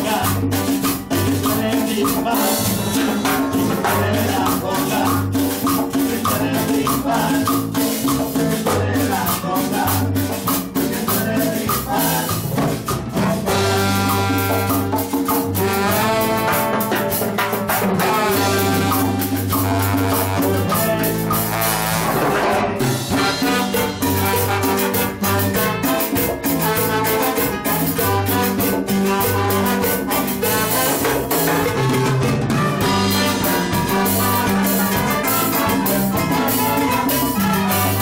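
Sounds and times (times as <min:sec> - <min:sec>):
live cumbia band: 0:00.0 - 0:38.0
horn section long notes: 0:13.2 - 0:17.2, 0:18.0 - 0:38.0.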